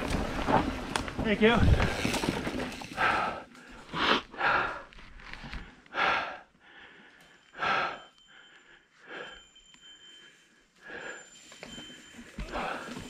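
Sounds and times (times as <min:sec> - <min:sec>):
person breathing heavily: 0:02.9 - 0:13.0.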